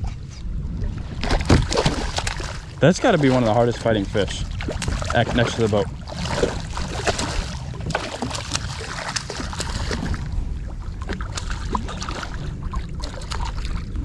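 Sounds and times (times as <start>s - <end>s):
fish splashing at the surface: 1.2s - 10.3s.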